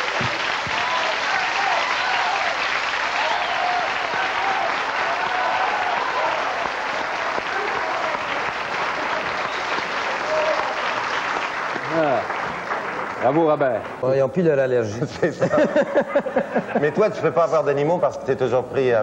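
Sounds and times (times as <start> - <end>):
audience applauding: 0.0 - 14.3
people shouting: 3.2 - 9.4, 10.1 - 10.8.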